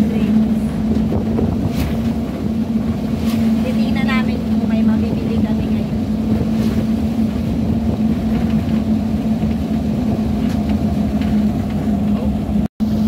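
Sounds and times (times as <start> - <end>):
vehicle engine and road noise: 0.0 - 13.0.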